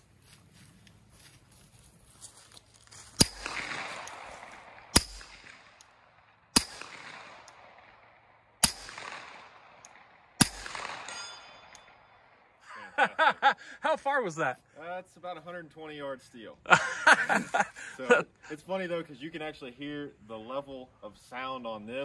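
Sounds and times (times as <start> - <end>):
bullets ringing steel target: 3.2 - 12.4
suppressed pistol shots with echo: 3.2 - 12.5.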